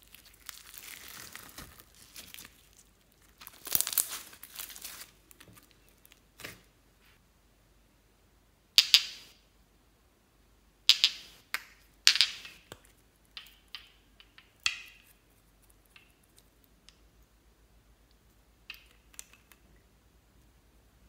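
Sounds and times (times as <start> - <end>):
slime crackling and squelching: 0.0 - 6.6.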